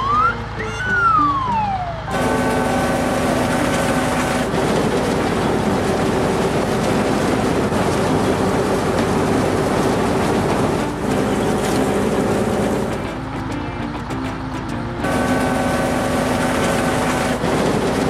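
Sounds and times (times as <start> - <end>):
background music: 0.0 - 3.2, 10.5 - 16.6
cartoon farm machinery noise: 0.0 - 18.0.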